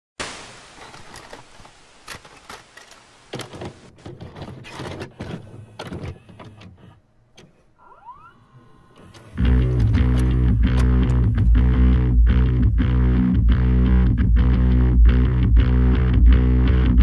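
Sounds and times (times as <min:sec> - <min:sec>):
tape recorder clunks and clicks: 0:00.9 - 0:07.7, 0:09.0 - 0:11.4.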